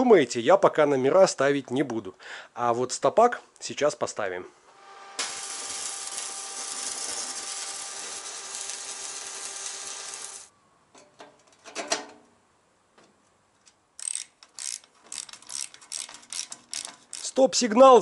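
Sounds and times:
electric arc welding sizzling: 4.8s - 10.5s
clicks and knocks of handling: 10.9s - 12.2s
hand ratchet clicking rapidly: 14.0s - 17.4s.

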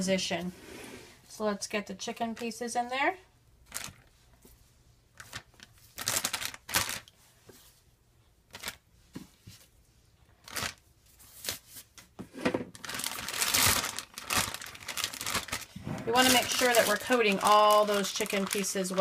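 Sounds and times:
plastic bag crinkling: 3.7s - 4.1s, 5.2s - 7.1s, 10.4s - 10.8s, 12.7s - 19.0s.

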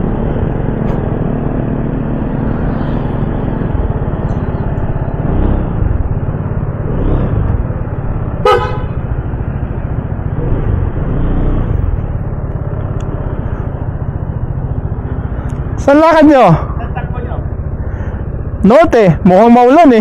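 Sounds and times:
motorcycle engine and road rumble: 0.0s - 20.0s
vehicle horn toot: 8.4s - 9.0s.

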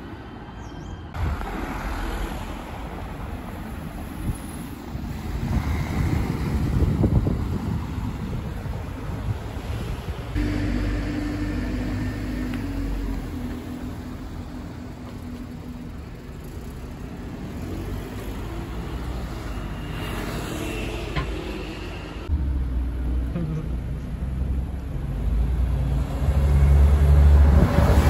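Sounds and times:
tyre and road noise: 0.0s - 28.0s
cars driving past slowly: 9.0s - 28.0s.

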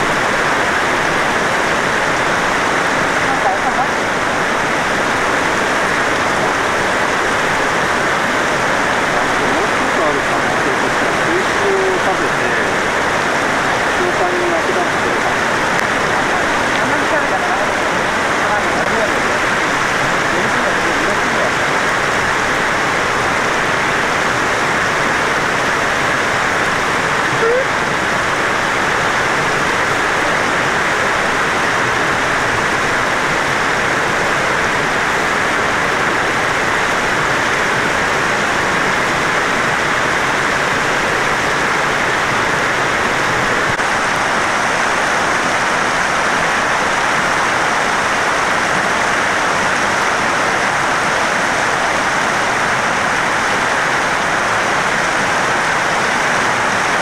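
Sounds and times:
rushing flowing water: 0.0s - 57.0s.

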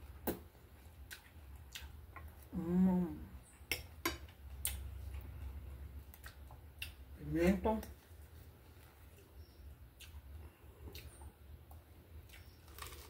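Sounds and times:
chewing: 1.0s - 2.5s, 4.6s - 7.0s, 10.0s - 11.4s, 12.2s - 13.0s
person humming mmm: 2.5s - 3.4s.

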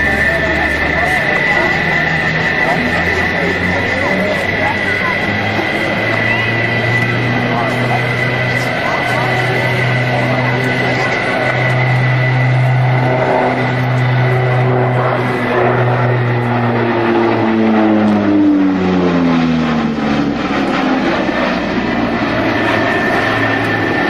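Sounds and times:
high engine whine: 0.0s - 24.0s
turboprop aircraft droning: 0.0s - 24.0s.

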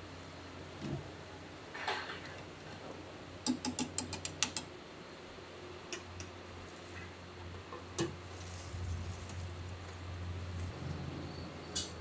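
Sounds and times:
low steady hum: 0.0s - 12.0s
metal spoon clicking on wire basket: 3.4s - 4.7s.

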